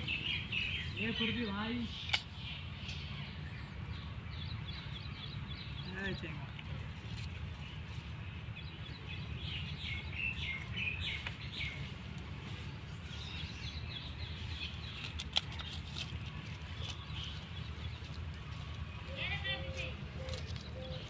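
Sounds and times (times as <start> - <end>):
low steady rumble: 0.0 - 21.0
sharp click: 2.0 - 2.3.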